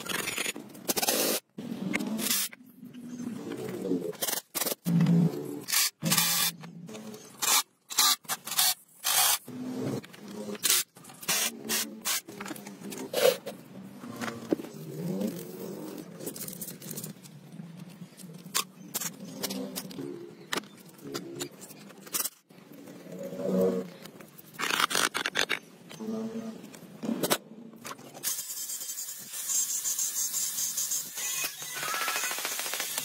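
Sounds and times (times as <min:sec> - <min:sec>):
tools scraping and hissing: 0:04.1 - 0:14.7.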